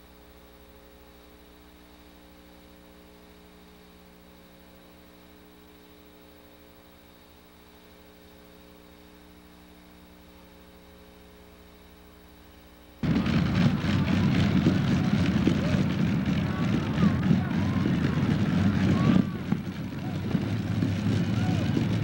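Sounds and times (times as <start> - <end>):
faint electrical hum: 0.0 - 13.0.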